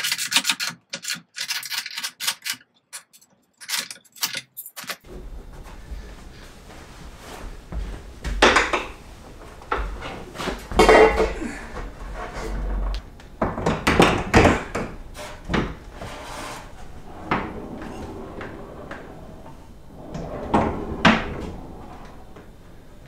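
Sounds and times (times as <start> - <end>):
barn door rolling on track: 11.9 - 23.0.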